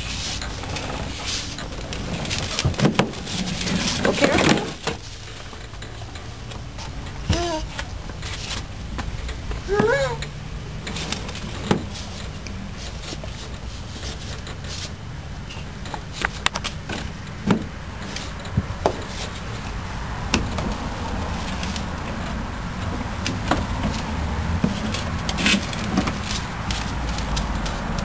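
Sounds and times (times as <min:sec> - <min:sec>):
steady low rumble: 0:14.9 - 0:28.0.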